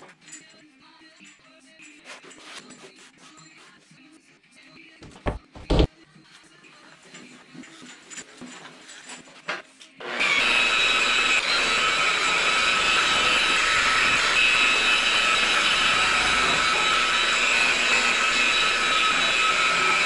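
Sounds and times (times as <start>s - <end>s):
rotary polisher motor whine: 10.0s - 20.0s.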